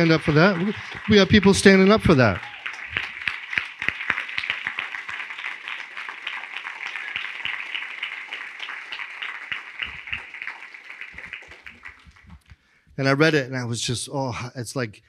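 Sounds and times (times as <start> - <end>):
crowd applauding: 0.0 - 12.5.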